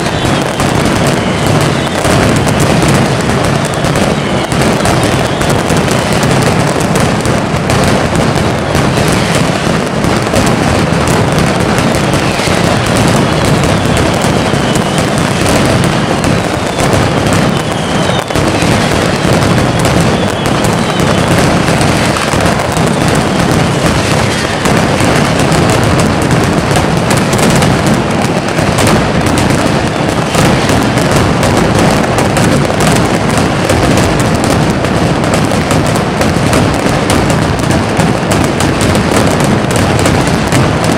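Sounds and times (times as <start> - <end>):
firecrackers exploding: 0.0 - 40.9.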